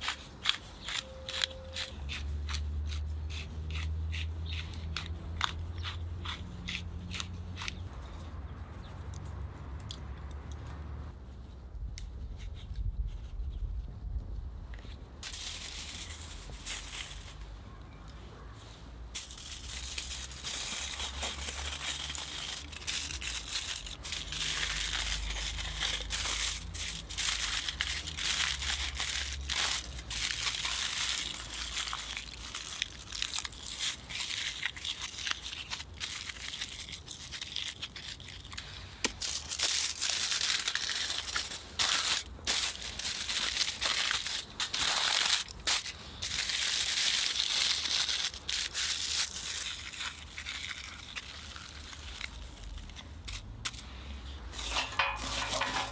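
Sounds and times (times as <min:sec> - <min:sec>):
aluminium foil crinkling: 0:00.0 - 0:03.1, 0:15.2 - 0:17.6, 0:19.1 - 0:55.9.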